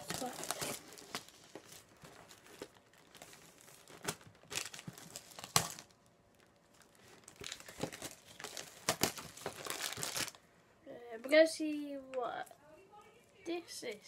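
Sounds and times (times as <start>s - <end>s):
plastic wrapping crinkling: 0.0s - 10.4s.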